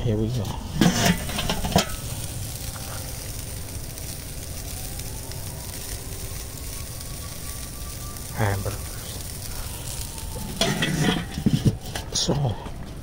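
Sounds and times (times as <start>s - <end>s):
patties sizzling on a grill: 0.0s - 13.0s
grill lid clattering: 0.3s - 2.6s, 10.4s - 12.2s.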